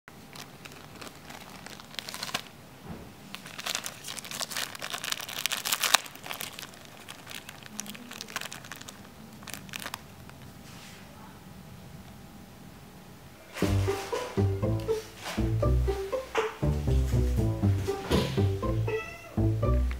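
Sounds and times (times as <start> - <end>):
plastic bag crinkling: 0.1 - 2.6, 3.2 - 10.6.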